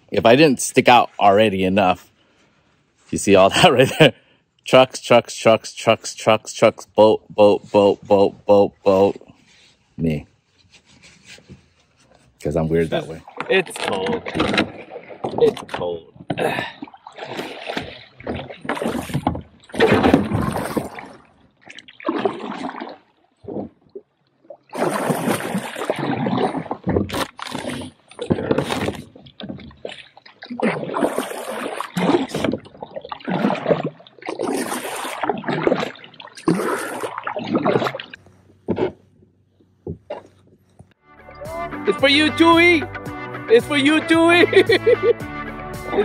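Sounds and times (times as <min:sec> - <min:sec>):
paddle splashing water: 0:10.7 - 0:40.8, 0:41.6 - 0:45.2.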